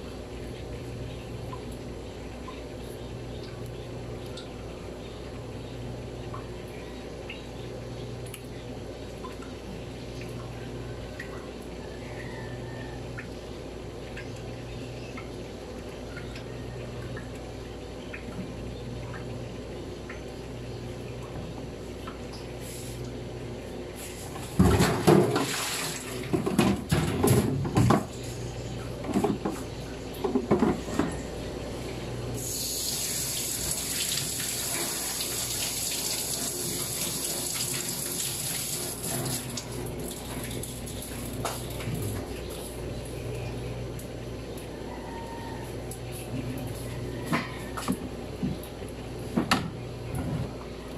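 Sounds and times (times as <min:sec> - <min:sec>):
water running: 0:24.5 - 0:26.4, 0:32.4 - 0:42.7
water splashing and knocking: 0:24.6 - 0:28.1.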